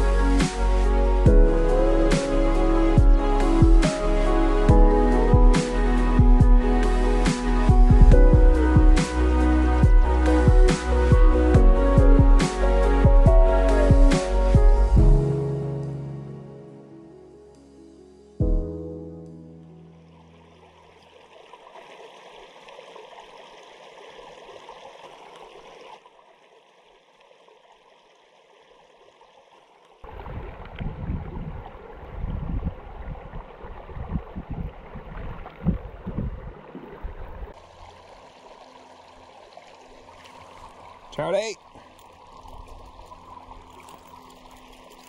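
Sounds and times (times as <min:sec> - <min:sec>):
creek water trickling: 0:00.0 - 0:15.0, 0:19.3 - 0:45.0
low rumbles and thumps: 0:07.7 - 0:09.0, 0:33.9 - 0:37.6.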